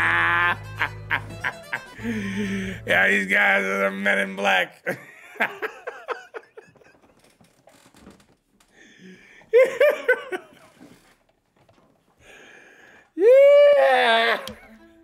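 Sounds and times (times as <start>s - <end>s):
man laughing: 0.0s - 3.2s, 4.8s - 7.2s, 9.5s - 10.7s.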